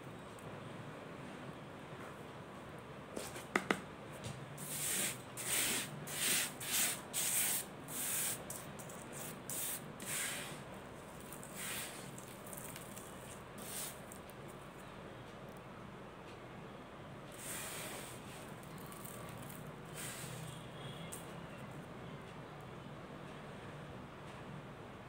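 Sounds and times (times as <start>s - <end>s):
gritty powder rustles: 4.6s - 14.4s.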